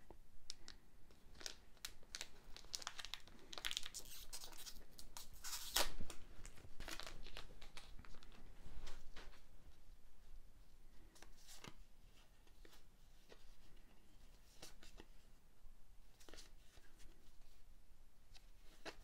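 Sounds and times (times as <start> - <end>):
wrapper crinkling: 0.6 - 8.4
wrapper tearing: 1.3 - 8.2.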